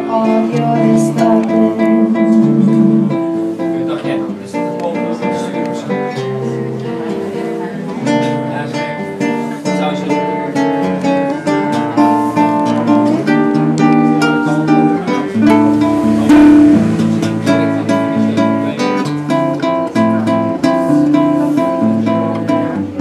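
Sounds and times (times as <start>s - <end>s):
strummed guitar chord: 0.0s - 7.2s, 11.8s - 22.9s
fingerpicked classical guitar: 0.0s - 23.0s.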